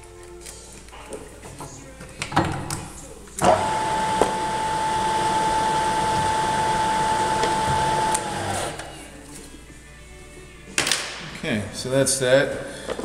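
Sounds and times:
milling machine spindle whine: 3.4s - 8.9s.

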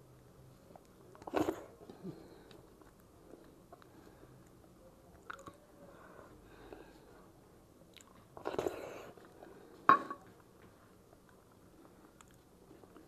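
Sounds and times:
soft chewing: 0.2s - 13.0s.

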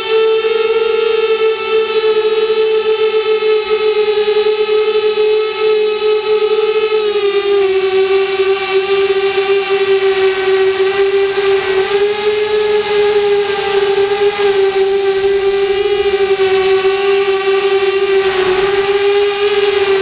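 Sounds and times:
quadcopter motors whining: 0.0s - 20.0s.

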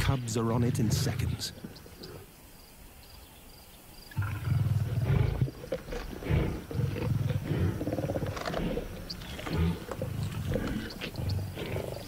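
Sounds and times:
lions growling: 4.1s - 12.0s.

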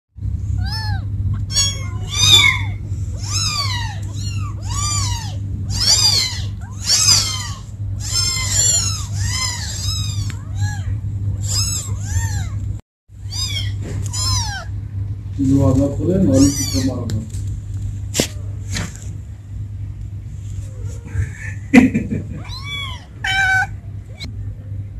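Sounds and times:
steady low hum: 0.2s - 24.9s
kittens meowing: 0.5s - 14.8s, 16.0s - 17.2s, 22.3s - 24.3s.

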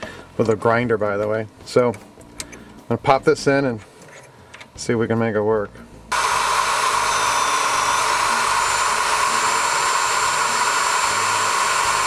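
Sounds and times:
drill drilling into bolt: 6.1s - 12.0s.

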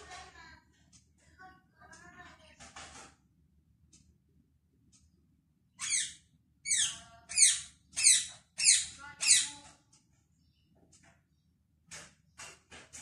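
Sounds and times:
parrot screeching: 5.8s - 9.5s.

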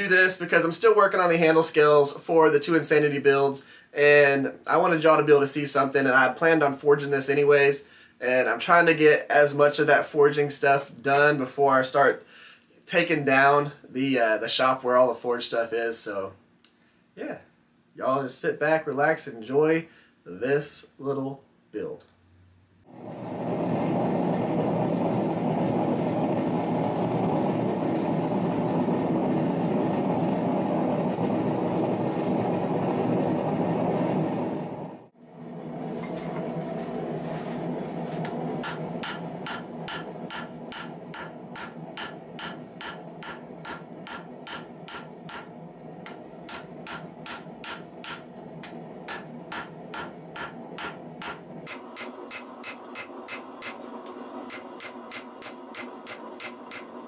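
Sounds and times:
forge burning with rushing noise: 22.8s - 57.0s
hammer blows on anvil: 38.6s - 45.5s, 46.1s - 48.3s, 49.1s - 53.8s.

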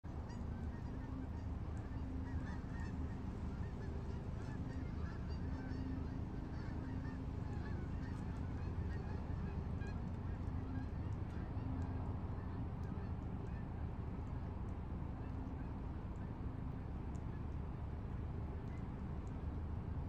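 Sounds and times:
geese honking: 0.2s - 13.6s.

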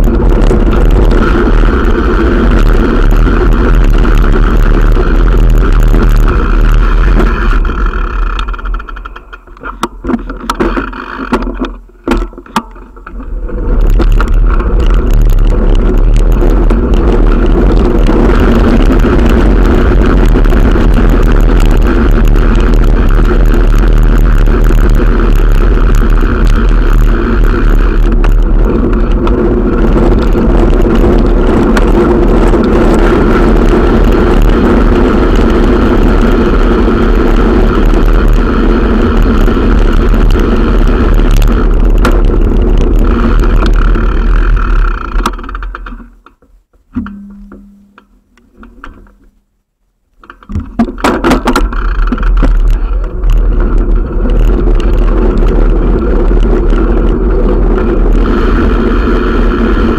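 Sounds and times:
wind rushing on microphone: 0.0s - 9.1s, 13.0s - 45.6s, 50.5s - 59.9s
bicycle rolling noise: 0.0s - 49.4s, 50.2s - 59.9s
low hum: 0.0s - 59.9s.

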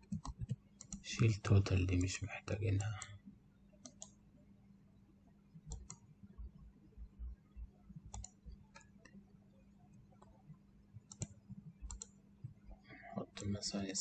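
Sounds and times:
computer mouse clicks: 0.0s - 1.0s, 3.8s - 4.2s, 5.7s - 6.1s, 8.1s - 9.2s, 10.1s - 12.2s
low steady hum: 0.0s - 14.0s.

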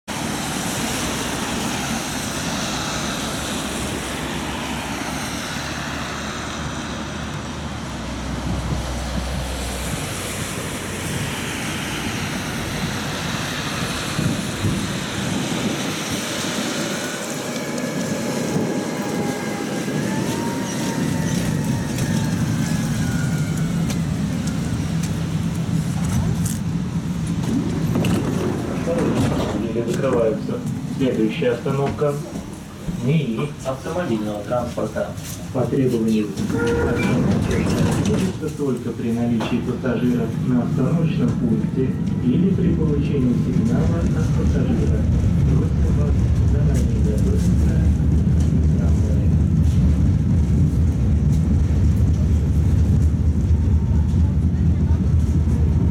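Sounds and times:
tram rumble and hum: 0.1s - 55.9s
tram wheel squeal: 16.4s - 25.3s, 36.2s - 38.6s.

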